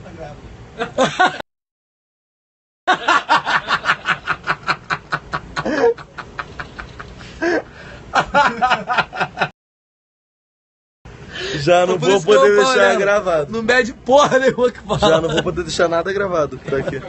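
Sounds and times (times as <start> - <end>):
man laughing heartily: 0.8 - 1.4, 2.9 - 9.5, 16.6 - 17.0.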